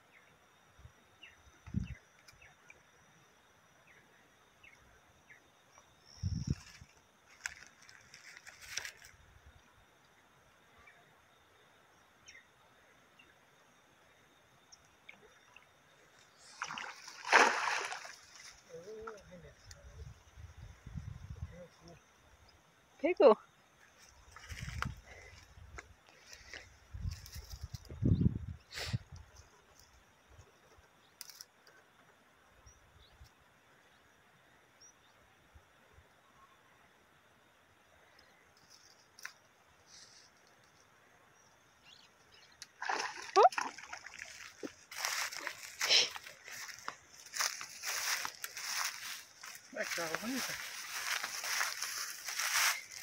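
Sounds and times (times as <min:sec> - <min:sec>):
net splashing into water: 0:16.5 - 0:18.6, 0:42.8 - 0:45.9
faint bird chirps: 0:41.2 - 0:42.6.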